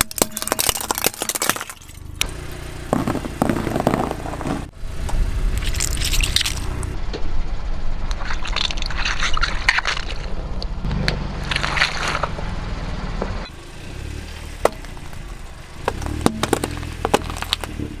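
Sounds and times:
squishy toys bursting: 0:00.0 - 0:02.0
engine rumble: 0:00.0 - 0:18.0.

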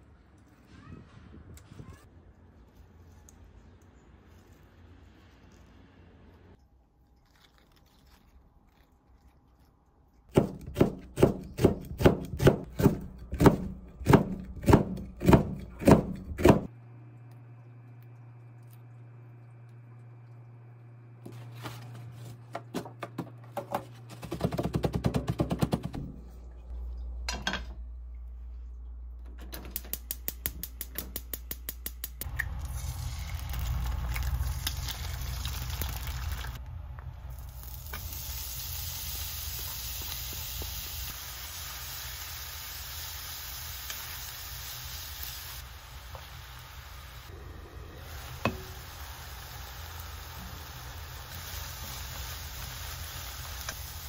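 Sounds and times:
food sizzling in a frying pan: 0:32.5 - 0:36.6, 0:37.4 - 0:54.0.

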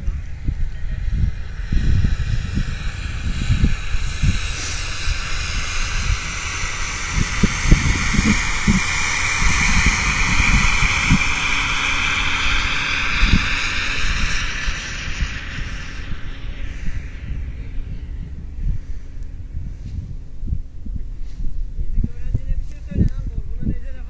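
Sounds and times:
tractor engine passing: 0:00.0 - 0:24.0
wind thumping on microphone: 0:00.0 - 0:24.0.

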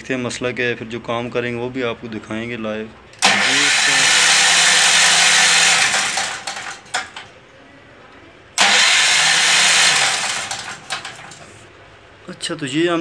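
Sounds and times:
generator engine cranking: 0:03.2 - 0:07.3, 0:08.6 - 0:11.6.

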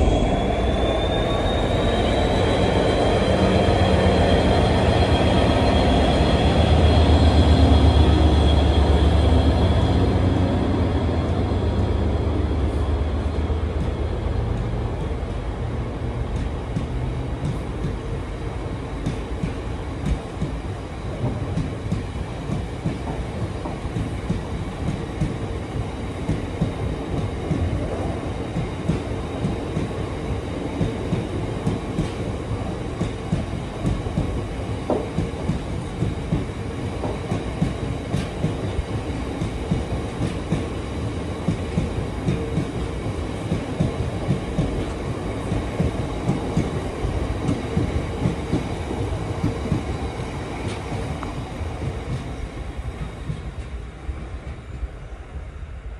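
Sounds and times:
freight train rumbling past: 0:00.0 - 0:55.9.

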